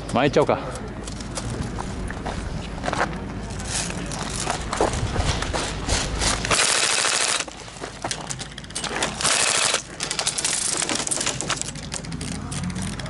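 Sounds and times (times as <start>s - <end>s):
airsoft gun firing bursts: 6.5s - 7.6s, 9.1s - 10.0s.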